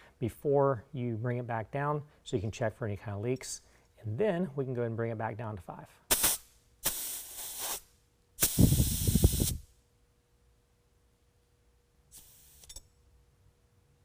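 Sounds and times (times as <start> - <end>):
compressed air hissing: 6.1 - 9.7, 12.1 - 12.8.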